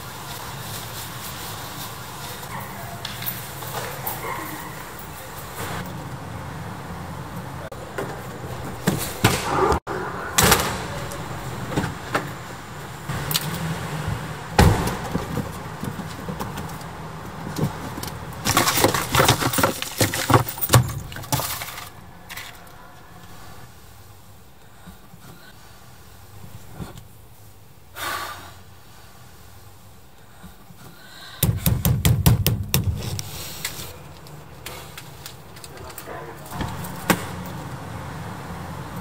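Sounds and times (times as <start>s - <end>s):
rustling inside car: 13.5s - 27.7s
car door shutting thud: 14.6s - 15.4s
sharp knocks: 31.4s - 33.2s.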